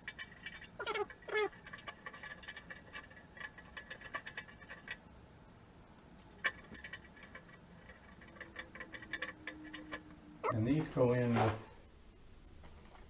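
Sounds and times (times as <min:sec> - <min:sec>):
metallic clicking of bolts: 0:00.0 - 0:05.0, 0:06.4 - 0:10.2.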